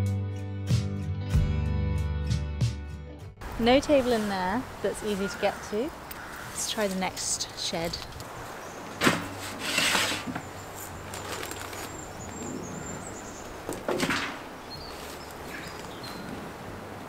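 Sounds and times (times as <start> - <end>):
scraping and rustling of handling: 9.0 - 12.1.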